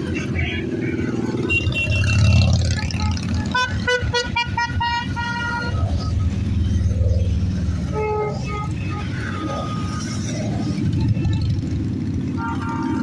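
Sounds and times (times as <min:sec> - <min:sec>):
motorcycles riding past: 0:00.0 - 0:04.4.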